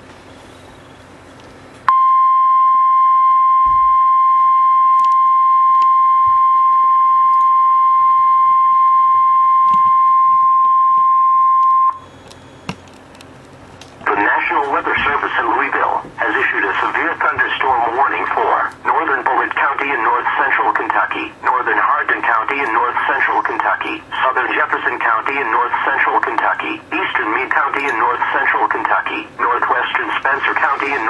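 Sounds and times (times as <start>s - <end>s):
steady alarm beep: 1.9s - 12.8s.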